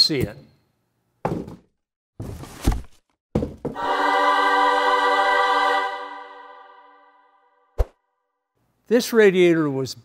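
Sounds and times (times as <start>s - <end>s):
held choir-like chord: 3.8s - 7.7s.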